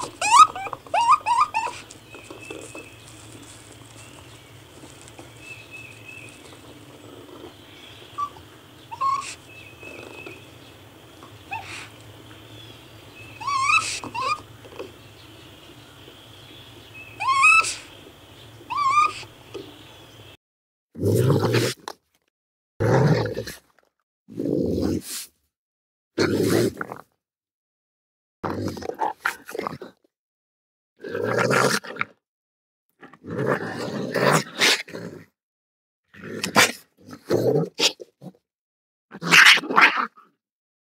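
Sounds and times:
raccoon harsh growling calls: 0:00.0 - 0:20.1, 0:33.0 - 0:35.3, 0:39.1 - 0:40.4
background hum: 0:00.0 - 0:20.4
raccoon whistled chirps: 0:00.2 - 0:01.8, 0:08.0 - 0:10.4, 0:13.2 - 0:14.4, 0:17.1 - 0:17.9, 0:18.7 - 0:19.3.

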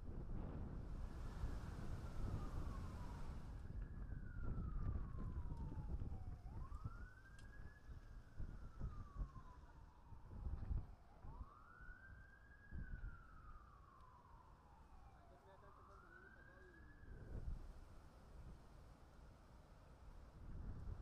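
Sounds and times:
siren wailing: 0:00.8 - 0:17.6.

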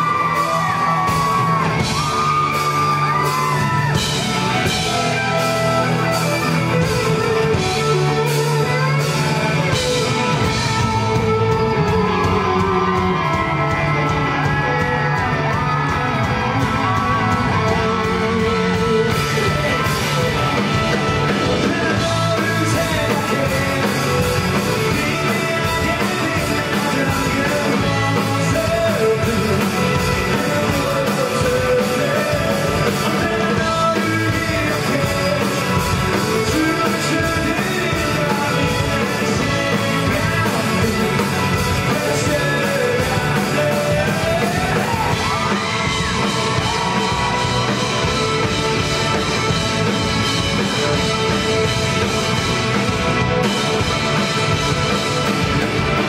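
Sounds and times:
person singing lead vocal: 0:00.0 - 0:48.2
live rock band playing: 0:00.0 - 0:56.0.

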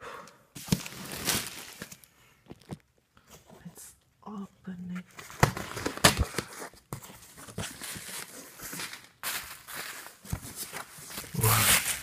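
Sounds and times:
bubble wrap and cardboard rustling: 0:00.6 - 0:02.9, 0:05.1 - 0:12.0.

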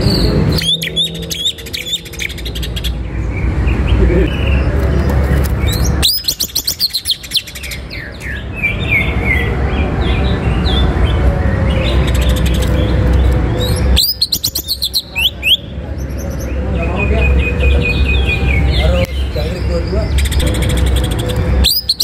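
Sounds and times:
bird singing whistled notes: 0:00.0 - 0:03.4, 0:05.7 - 0:09.5, 0:11.7 - 0:22.0.

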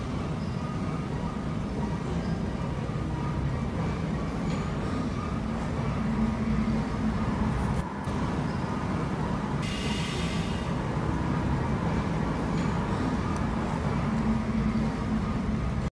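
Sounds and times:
short hiss: 0:09.6 - 0:10.8.

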